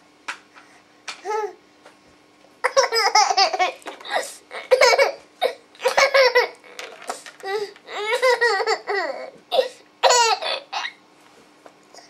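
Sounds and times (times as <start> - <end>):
baby giggling: 2.6 - 5.2, 5.8 - 6.7, 7.9 - 9.3.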